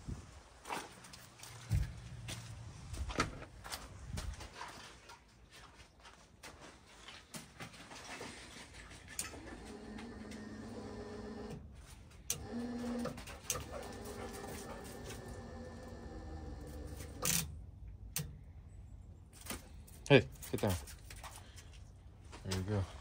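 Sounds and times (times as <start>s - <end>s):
dog whining and panting: 12.8s - 16.0s.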